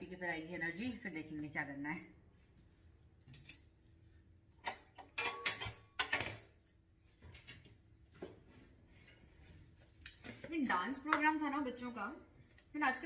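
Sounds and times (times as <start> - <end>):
kitchen utensils and pan clattering: 4.6 - 6.6.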